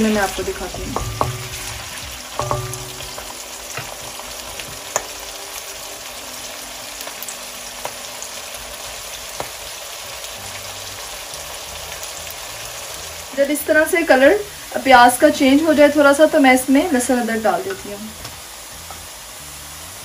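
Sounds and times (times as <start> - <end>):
onions sizzling in oil: 0.0 - 20.0.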